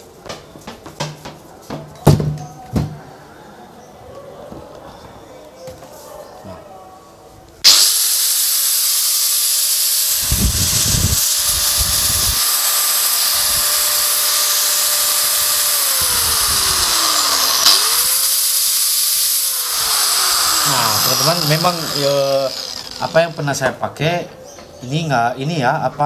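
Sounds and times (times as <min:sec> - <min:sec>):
angle grinder whining: 0:07.6 - 0:23.6.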